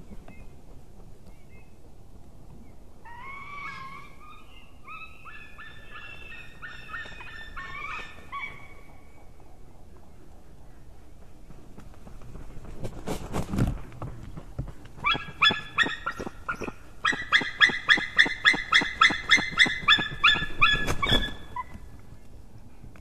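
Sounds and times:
eagle calling: 3.0s - 9.0s, 15.0s - 21.8s
wingbeats: 15.0s - 21.8s.

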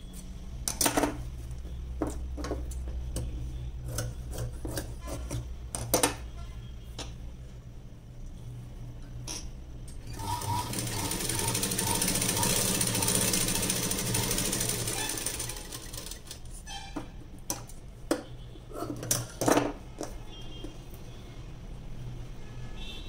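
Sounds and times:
sewing machine stitching: 10.0s - 16.4s.

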